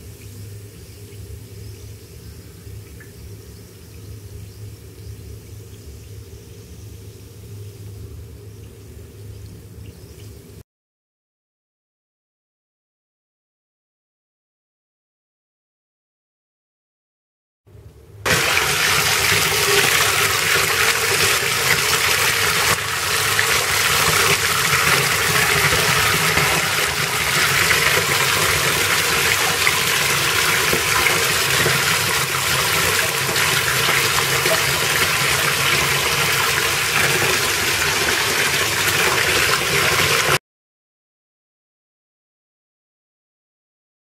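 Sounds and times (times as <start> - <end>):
tap water pouring into bathtub: 18.3 - 40.4.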